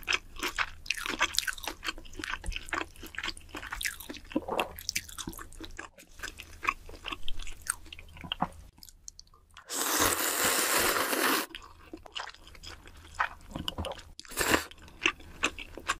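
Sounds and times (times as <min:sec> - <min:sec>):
wet chewing and mouth smacks: 0:00.0 - 0:09.7, 0:11.5 - 0:15.9
loud slurp of noodles: 0:09.7 - 0:11.5.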